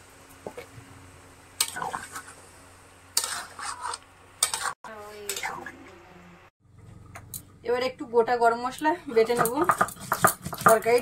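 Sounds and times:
spoon scraping a pan: 3.1s - 5.6s.

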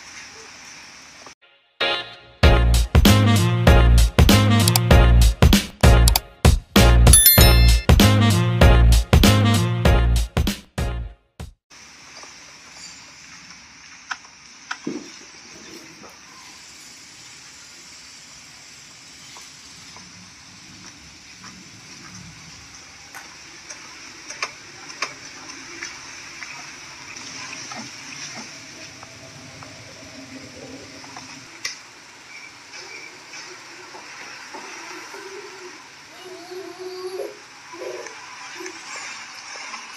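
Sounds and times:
sharp clicks: 4.6s - 4.9s.

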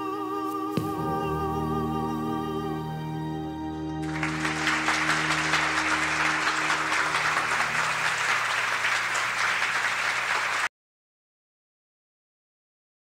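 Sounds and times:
held musical chord: 0.8s - 8.8s
audience applauding: 4.0s - 10.7s.

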